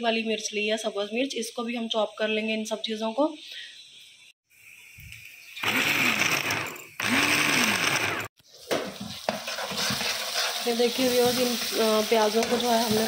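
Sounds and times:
food chopper whirring: 5.6 - 8.4.

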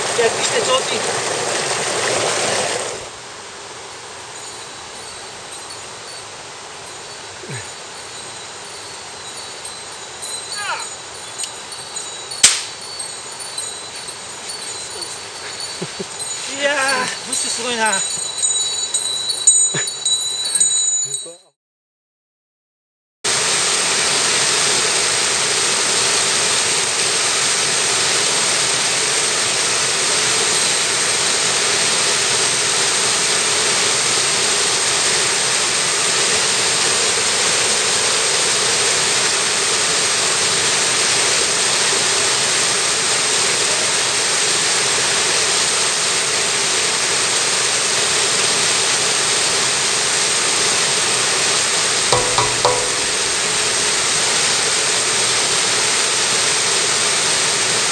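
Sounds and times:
stream water roaring: 0.0 - 20.3, 23.3 - 57.9
brief knocks: 52.2 - 53.3.

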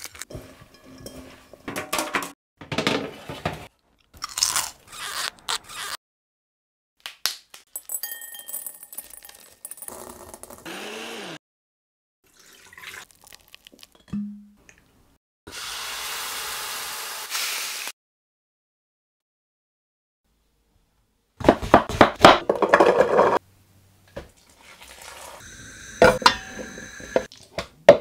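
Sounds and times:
blender running: 10.6 - 11.4, 15.5 - 17.9
liquid pouring into a jar: 12.3 - 14.0.

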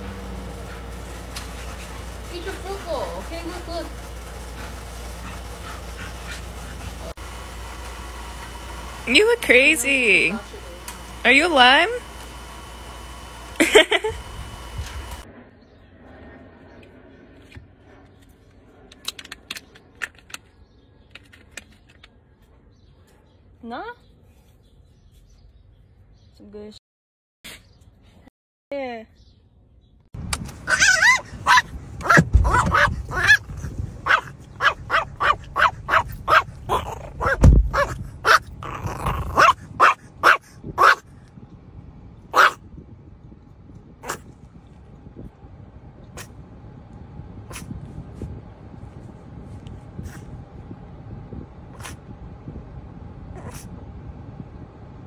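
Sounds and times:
low rumble: 30.2 - 55.0
small dog yapping: 30.6 - 41.0, 42.3 - 42.6, 44.0 - 44.3, 53.4 - 53.7
dull thump: 32.0 - 33.0, 37.2 - 37.9.

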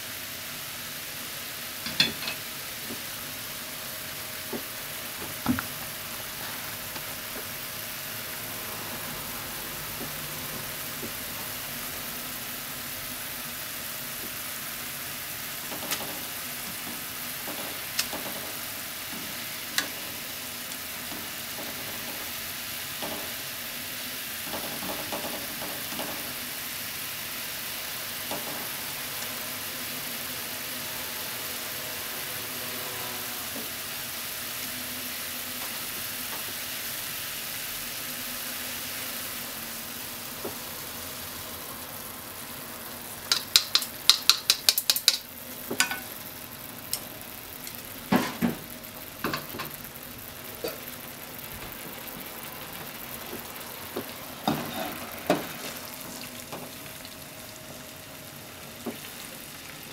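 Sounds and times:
broth simmering with hiss: 0.0 - 59.9
chopsticks clicking on a pan: 43.3 - 45.2.

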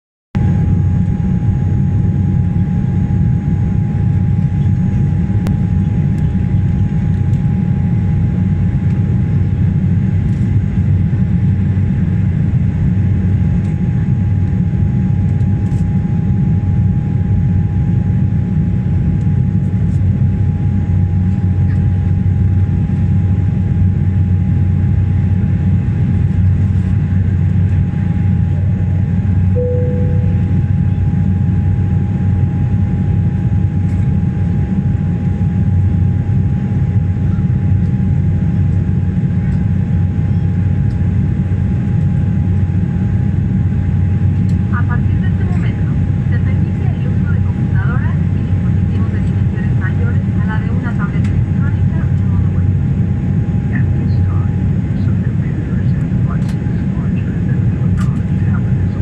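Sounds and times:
airliner engines rumbling: 0.4 - 59.0
faint steady whine: 23.9 - 59.0.

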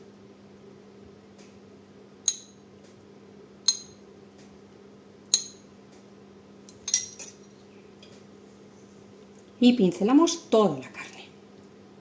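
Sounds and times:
metal spoon clinking on dish: 2.3 - 2.6, 3.7 - 4.0, 5.3 - 5.7, 6.7 - 7.6.

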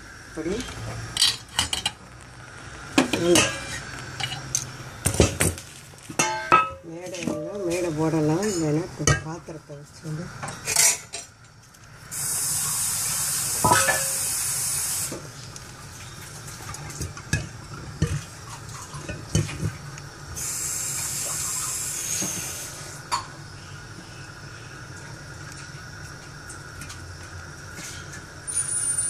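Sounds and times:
metal plate clinking against pot: 6.2 - 6.8.

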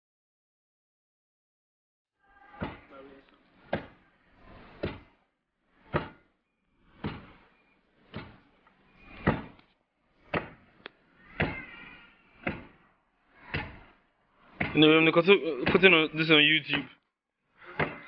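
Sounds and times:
wooden pestle pounding in mortar: 3.6 - 4.0, 4.7 - 5.1, 5.8 - 6.2, 7.0 - 7.3, 9.2 - 9.6, 10.2 - 10.6, 11.2 - 11.8, 12.4 - 12.8, 13.4 - 13.9, 14.5 - 14.9, 15.5 - 15.9, 17.8 - 18.0.

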